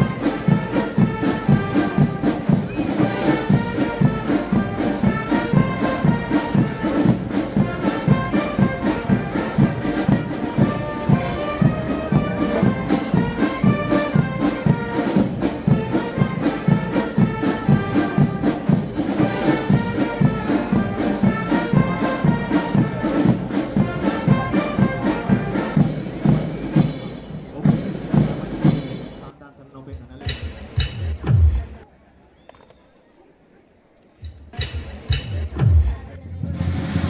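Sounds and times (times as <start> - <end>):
brass band playing a march: 0.0 - 29.3.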